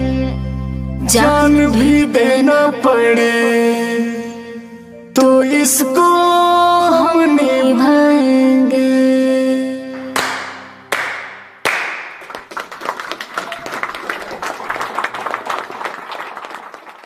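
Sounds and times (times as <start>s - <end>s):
crowd clapping and applauding: 10.2s - 17.0s.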